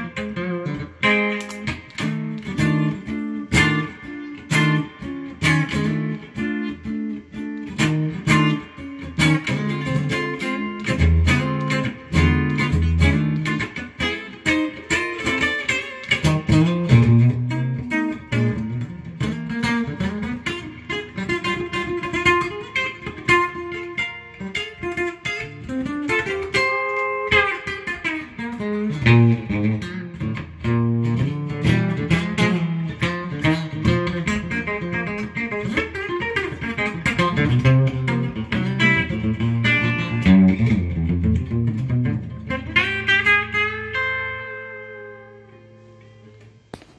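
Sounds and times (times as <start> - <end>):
electric guitar playing blues lines: 0.0 - 46.9.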